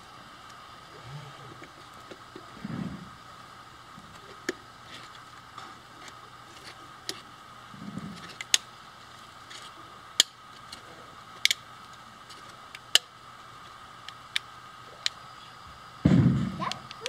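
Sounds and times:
faint steady hum: 0.0 - 17.0
plastic parts clicking together: 8.2 - 8.7, 11.4 - 13.1.

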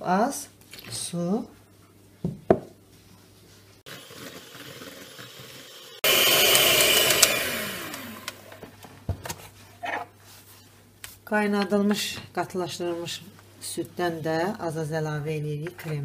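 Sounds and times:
electric hand mixer whipping: 3.9 - 8.6.

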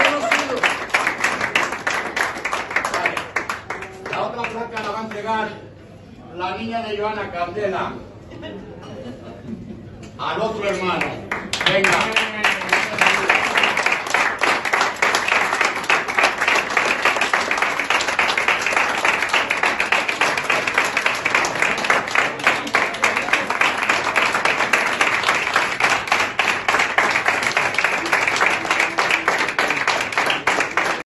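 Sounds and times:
people applauding: 0.0 - 5.5, 10.8 - 31.0.

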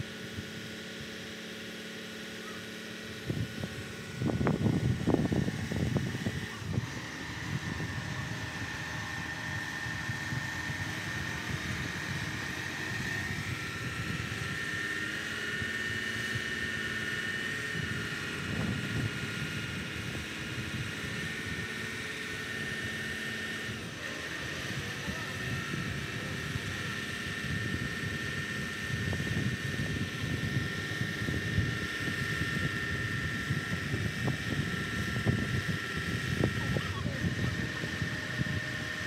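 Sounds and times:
crane diesel engine rumbling: 0.0 - 39.0.

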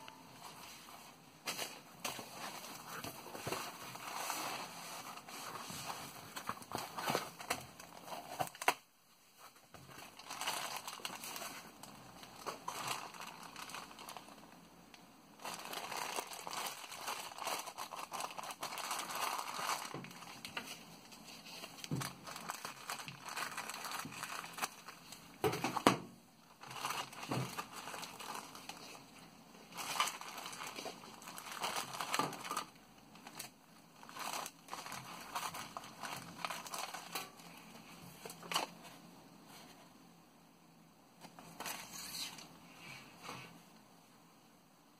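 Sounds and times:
plastic bags crinkling: 1.5 - 8.8, 9.8 - 14.7, 15.4 - 38.8.

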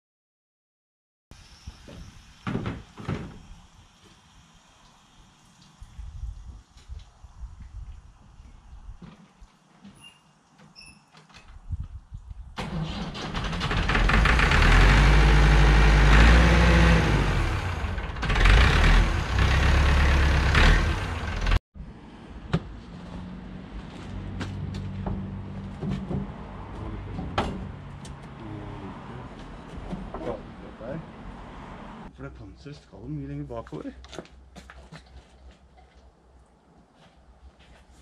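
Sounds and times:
tractor engine running: 12.6 - 21.6.

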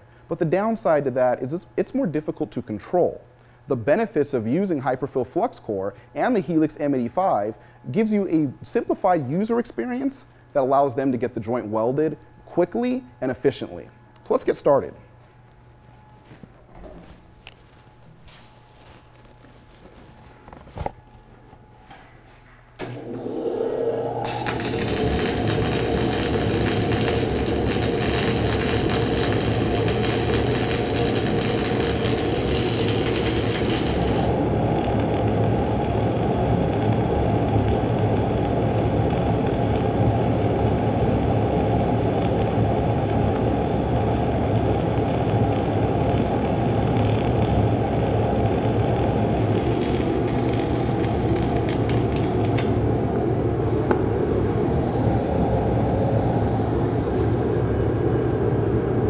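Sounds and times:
welding arc hissing: 23.2 - 53.0.

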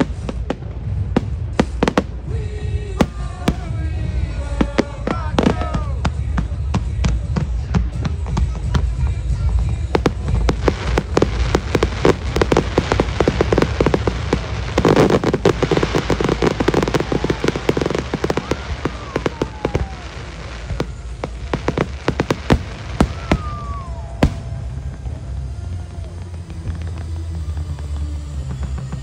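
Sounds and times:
fireworks bangs: 0.0 - 29.0
fireworks crackling: 0.0 - 29.0
falling whistle: 10.6 - 29.0.

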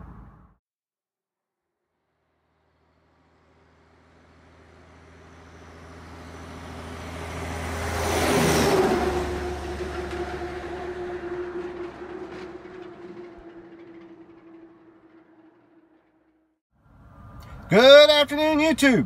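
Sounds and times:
vehicle passing by: 2.6 - 16.0.

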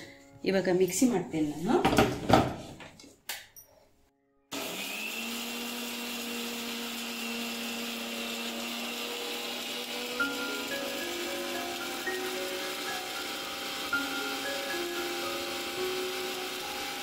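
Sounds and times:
mixer grinder running: 4.5 - 17.0.

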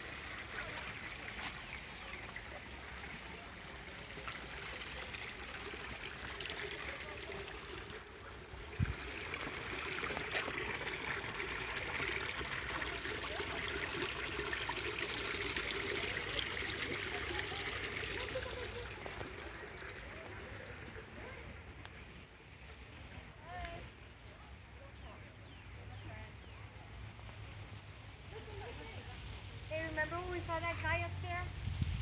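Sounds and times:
stream trickling over rocks: 0.0 - 24.0.

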